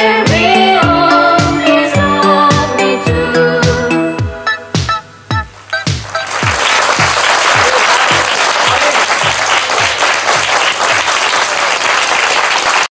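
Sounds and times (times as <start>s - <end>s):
electronic drum hits: 3.6s - 7.2s
audience applauding: 5.7s - 12.9s.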